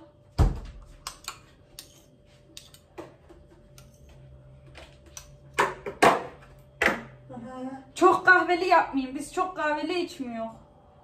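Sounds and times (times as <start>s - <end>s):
metal spoons clicking and scraping: 1.0s - 2.9s, 3.7s - 4.2s.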